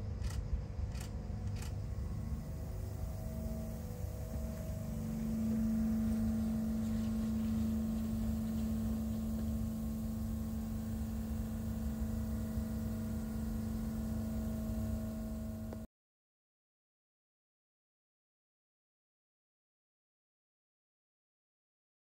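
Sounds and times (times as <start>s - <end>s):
low rumble: 0.0s - 15.8s
pitched drone: 0.0s - 15.8s
mechanical hum: 0.0s - 15.9s.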